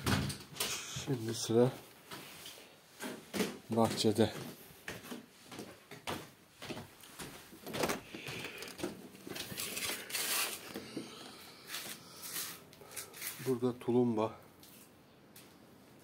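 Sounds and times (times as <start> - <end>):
footsteps: 1.8 - 13.6.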